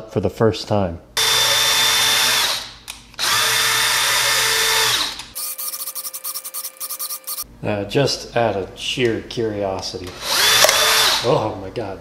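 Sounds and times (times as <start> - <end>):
cordless drill whine: 1.2 - 7.4, 10.1 - 11.3.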